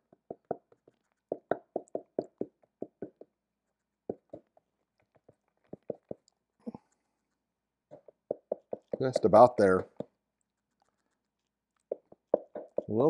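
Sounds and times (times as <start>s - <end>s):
cardboard box tapping on cup rim: 7.9s - 9.2s, 11.9s - 13.0s.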